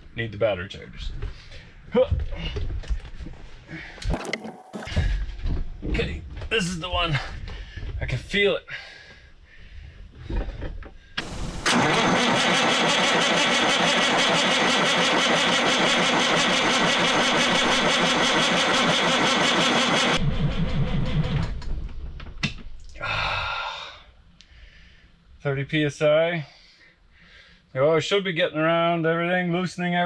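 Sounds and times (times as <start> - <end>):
diesel engine cranking by starter: 11.2 - 21.6.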